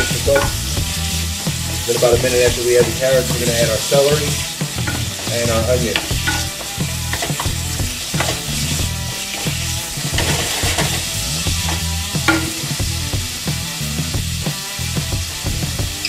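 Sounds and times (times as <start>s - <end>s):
spatula scraping a pan: 0.0s - 15.0s
chicken sizzling in hot oil: 0.0s - 16.0s.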